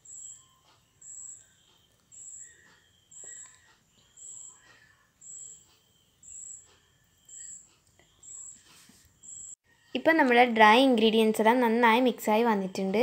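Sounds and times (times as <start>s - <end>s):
high-pitched chirp: 0.0s - 9.9s.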